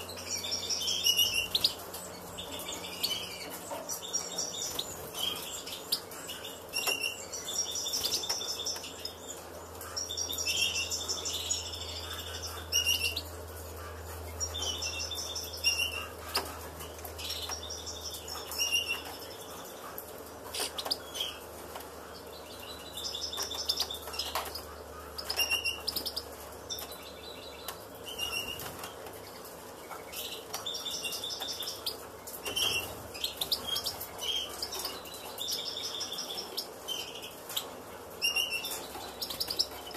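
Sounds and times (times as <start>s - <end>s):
goldfinches chirping: 0.0s - 21.4s.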